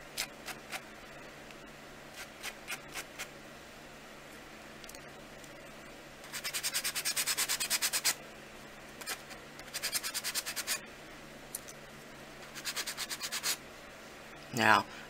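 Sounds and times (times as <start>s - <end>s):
sanding block rubbing: 6.3s - 8.2s, 9.0s - 10.8s, 12.5s - 13.6s.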